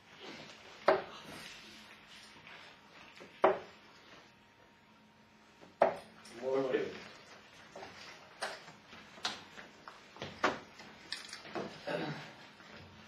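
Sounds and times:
darts hitting dartboard: 3.4 - 3.7.

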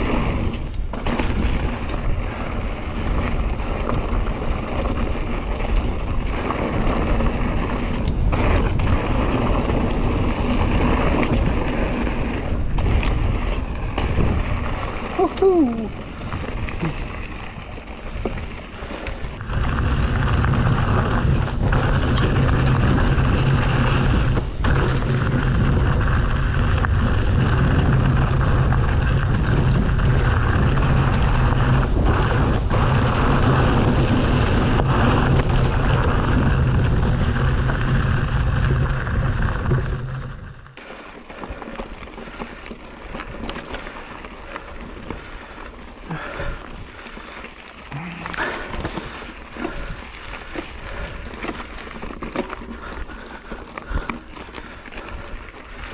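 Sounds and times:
bike tyres rumbling over dirt: 0.0 - 55.9
wind buffeting microphone: 0.0 - 55.9.

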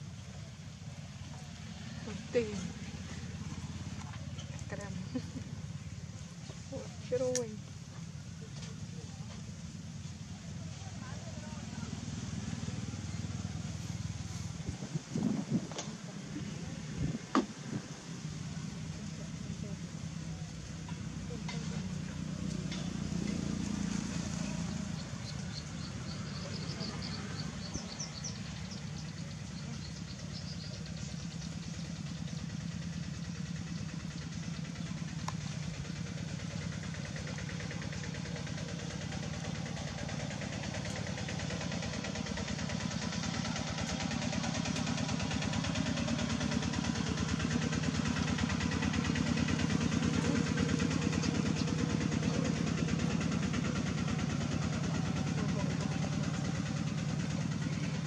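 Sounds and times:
small engine pulsing hum: 0.0 - 58.0.

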